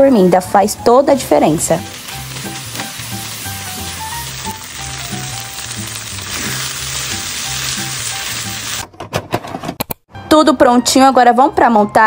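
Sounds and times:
food sizzling in a pan: 0.0s - 8.8s.

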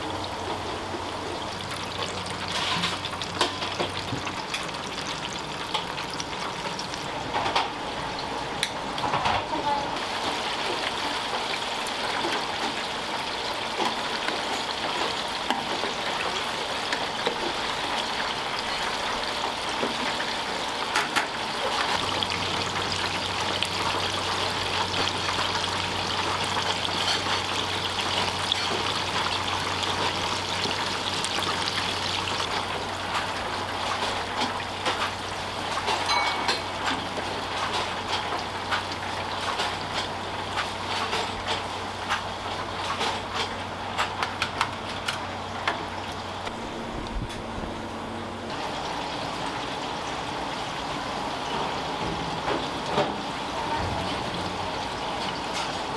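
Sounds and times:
chicken sizzling in hot oil: 0.0s - 9.0s, 9.6s - 44.3s.

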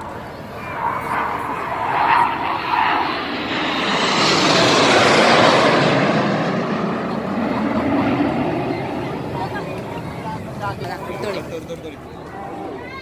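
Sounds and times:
jet engines passing overhead: 0.0s - 13.0s.

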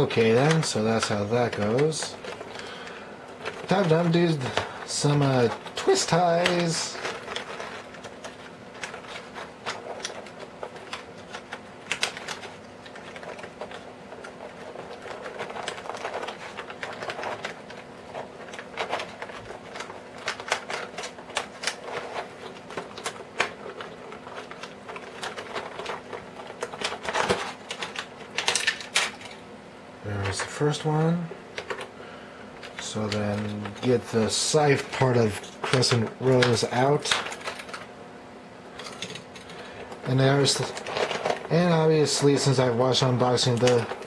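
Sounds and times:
stiff plastic packaging crinkling: 0.0s - 29.5s, 30.1s - 37.9s, 38.8s - 44.0s.

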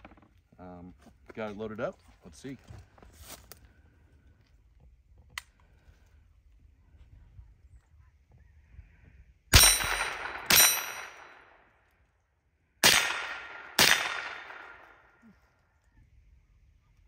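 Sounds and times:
rifle shots: 9.5s - 11.6s, 12.8s - 15.1s.

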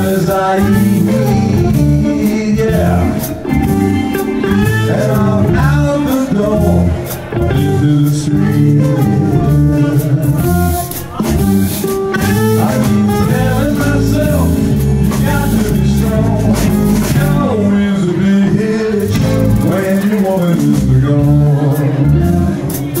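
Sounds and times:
blues band playing: 0.0s - 23.0s
electric guitar lead line: 0.0s - 23.0s.

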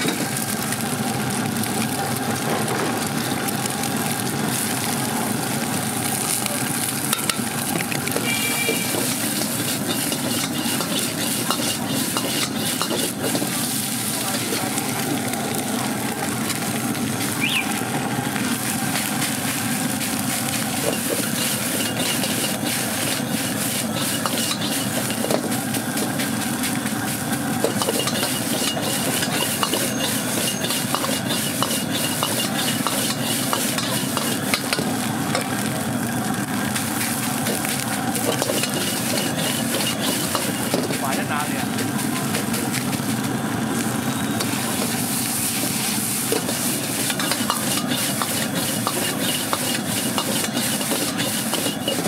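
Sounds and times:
rice sizzling in a wok: 0.0s - 52.0s
metal ladle scraping a wok: 8.2s - 13.6s, 20.8s - 25.4s, 27.7s - 34.8s, 38.2s - 41.0s, 44.4s - 52.0s.

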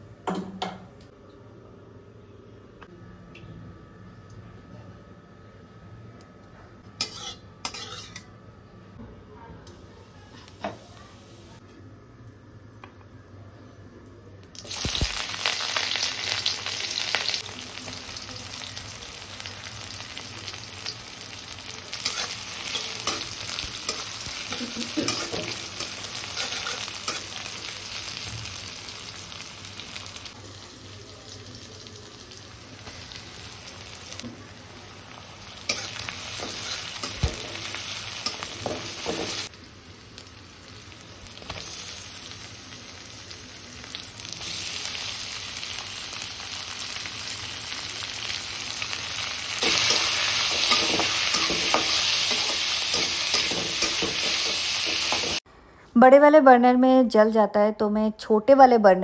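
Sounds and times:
food sizzling in hot oil: 7.0s - 8.2s, 14.6s - 55.4s.

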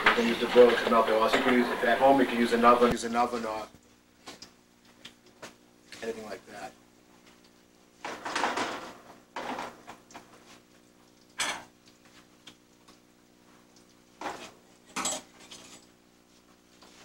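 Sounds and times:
metal pans clattering: 0.0s - 2.8s, 8.0s - 10.0s, 14.2s - 15.9s.

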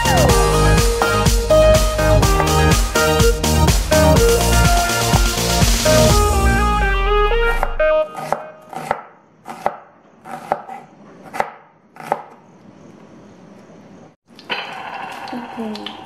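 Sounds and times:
electronic background music: 0.0s - 8.4s
knife chopping onion on wooden board: 8.1s - 12.4s.

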